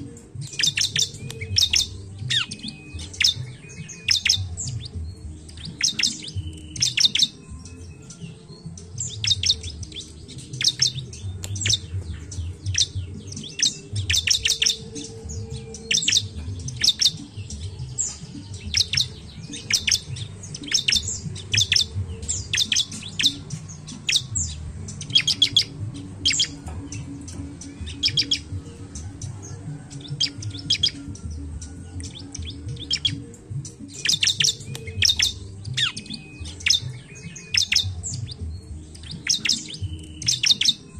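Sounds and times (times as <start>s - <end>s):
bird chirping: 0.0s - 40.9s.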